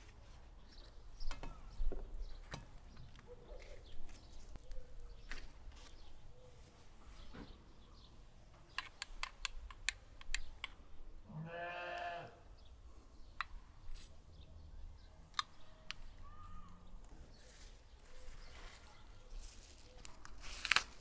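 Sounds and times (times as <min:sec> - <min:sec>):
bleat: 0:11.3 - 0:12.4.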